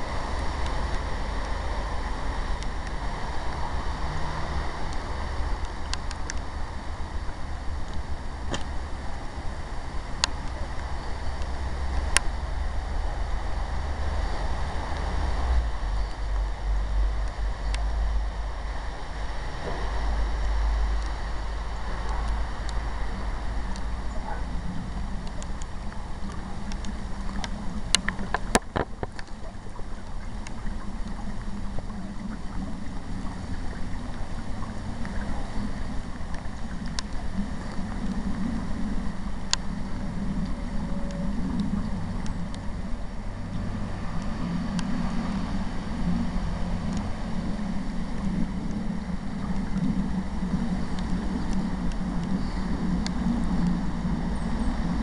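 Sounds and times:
low even rumble: 0:00.0 - 0:55.0
rain falling on foliage: 0:00.0 - 0:55.0
sharp taps of raindrops: 0:04.9 - 0:06.6, 0:07.8 - 0:08.8, 0:21.9 - 0:32.6.

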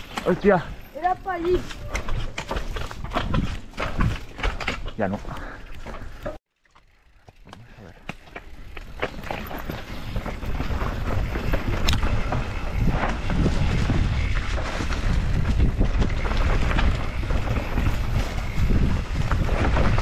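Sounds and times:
bike rattling over rough ground: 0:00.0 - 0:20.0
wind buffeting microphone: 0:00.6 - 0:04.9, 0:08.7 - 0:20.0.

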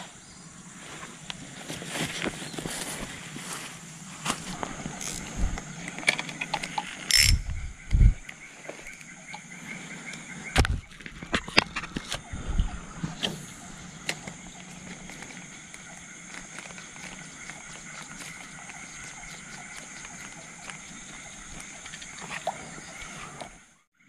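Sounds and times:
fishing reel clicking and ratcheting: 0:06.0 - 0:07.4.

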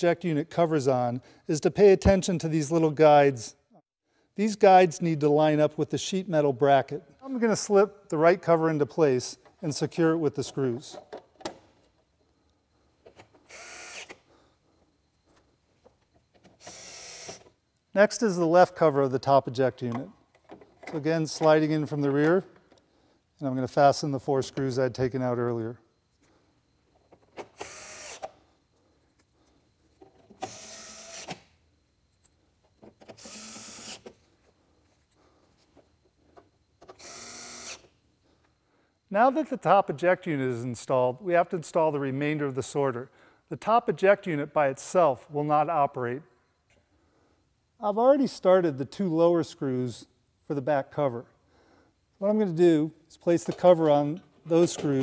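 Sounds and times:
electric screwdriver driving screw: 0:13.5 - 0:14.2, 0:16.6 - 0:17.4, 0:27.6 - 0:28.3, 0:30.4 - 0:31.4, 0:33.2 - 0:34.0, 0:37.0 - 0:37.8.

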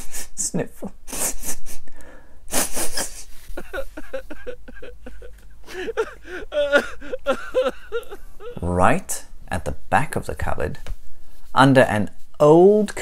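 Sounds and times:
person sniffling: 0:01.1 - 0:08.7
person sobbing: 0:03.0 - 0:08.8.

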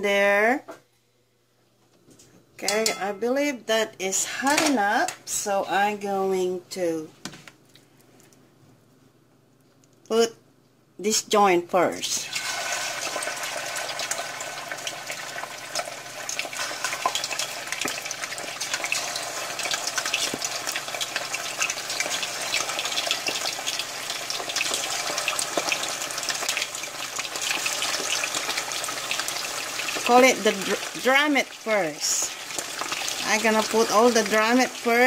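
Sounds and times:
chicken frying in hot oil: 0:12.2 - 0:35.0.

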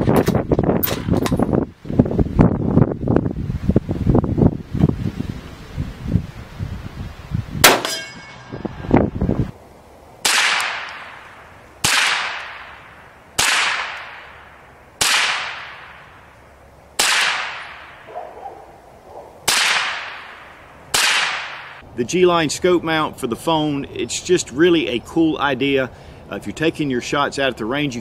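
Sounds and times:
rifle shots with echo: 0:07.6 - 0:08.0, 0:10.2 - 0:16.2, 0:17.0 - 0:18.2, 0:19.4 - 0:21.8
loud bangs with metallic ring: 0:07.6 - 0:08.8.

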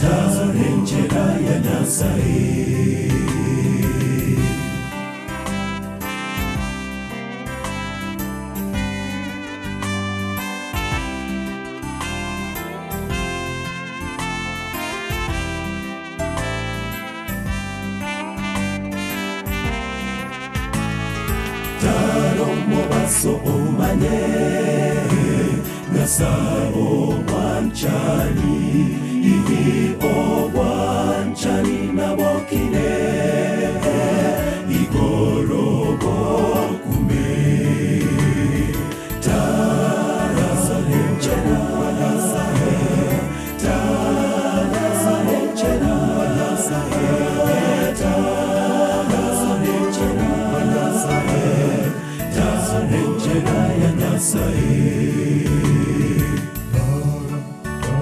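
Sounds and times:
men's choir singing gospel: 0:00.0 - 0:07.2, 0:21.0 - 0:58.0
low bass line: 0:00.0 - 0:58.0.

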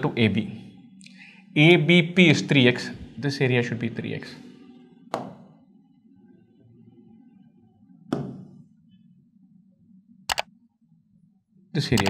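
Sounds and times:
marker knocking on whiteboard: 0:05.1 - 0:05.4, 0:08.1 - 0:08.5.

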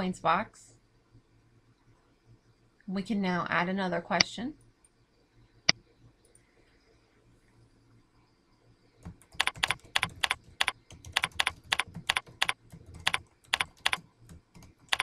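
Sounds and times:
computer keyboard typing: 0:09.0 - 0:15.0.

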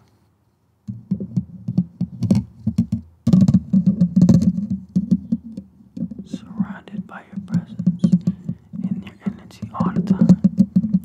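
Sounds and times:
fingertips scratching microphone grille: 0:04.2 - 0:11.0.

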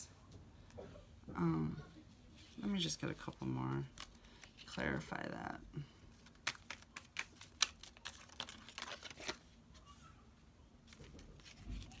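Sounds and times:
cards clicking and snapping: 0:06.2 - 0:09.4.

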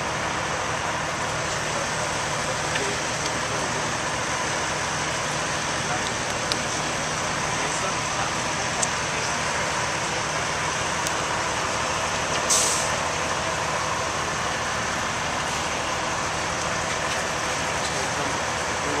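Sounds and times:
truck engine idling: 0:00.0 - 0:19.0
air hiss: 0:12.5 - 0:13.0.

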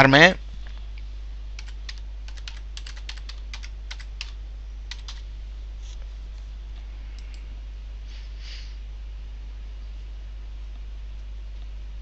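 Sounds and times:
computer keyboard keys clicking: 0:01.6 - 0:05.2.

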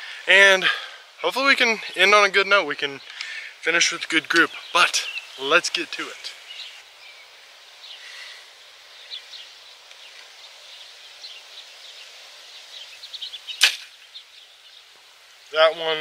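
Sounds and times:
faint chirping: 0:00.0 - 0:16.0
steady outdoor hiss: 0:00.0 - 0:16.0
bow string snap: 0:13.6 - 0:14.0.

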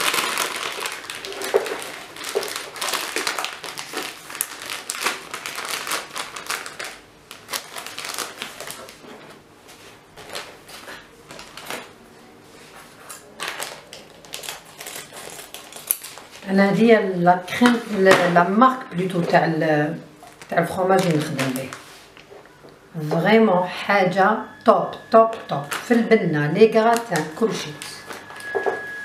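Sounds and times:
plastic packaging crinkling: 0:00.0 - 0:09.4, 0:10.2 - 0:11.9, 0:13.1 - 0:16.5, 0:20.2 - 0:22.3, 0:25.3 - 0:29.0.

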